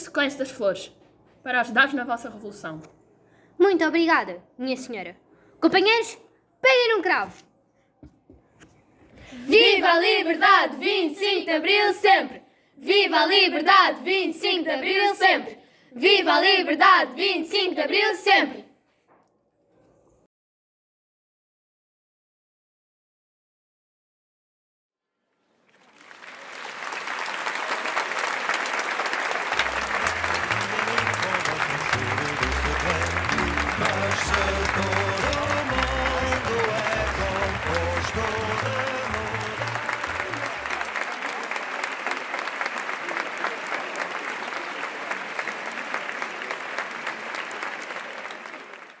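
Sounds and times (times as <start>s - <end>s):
applause: 25.5s - 49.0s
bass line music: 29.8s - 40.4s.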